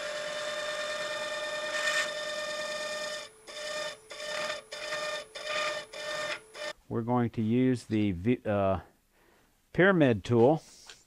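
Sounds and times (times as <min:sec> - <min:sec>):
texturing tool buzzing on spinning wood: 0:00.0 - 0:06.7.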